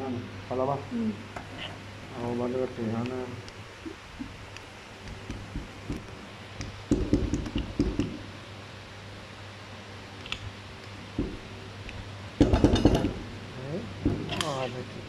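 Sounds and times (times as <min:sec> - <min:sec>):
low machine hum: 0:00.0 - 0:15.0
dull knocks: 0:11.2 - 0:11.4.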